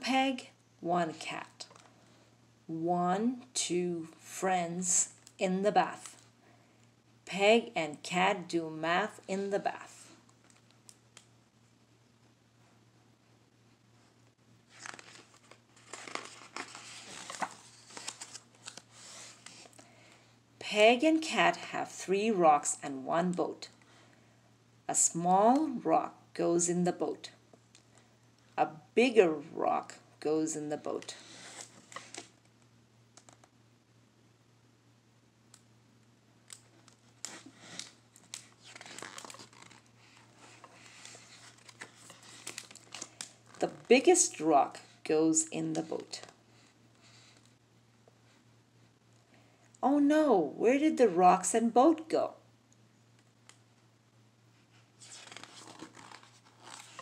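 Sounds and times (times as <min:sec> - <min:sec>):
paper page turning: 0:14.7 - 0:19.8, 0:36.5 - 0:43.8, 0:55.0 - 0:57.0.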